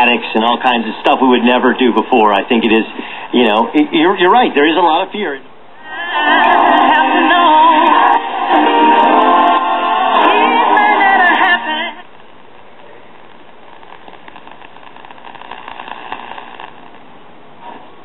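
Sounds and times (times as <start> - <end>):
radio static hiss: 0.0 - 18.0
music through radio speaker: 5.8 - 12.0.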